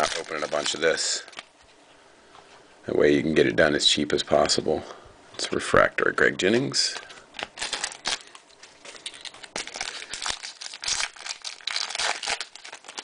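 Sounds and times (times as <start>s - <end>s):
foil wrapper tearing and crinkling: 0.0s - 1.5s, 6.9s - 13.0s.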